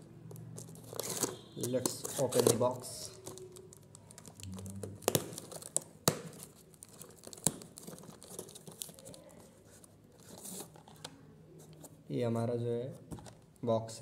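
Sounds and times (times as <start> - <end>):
cardboard rustling and scraping: 0.6 - 2.9, 6.4 - 11.0.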